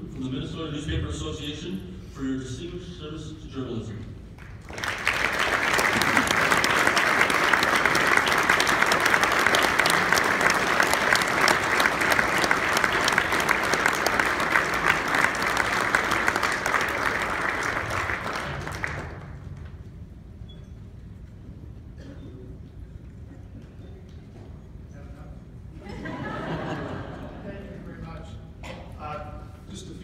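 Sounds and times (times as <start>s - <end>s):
audience applauding: 4.4s - 19.7s.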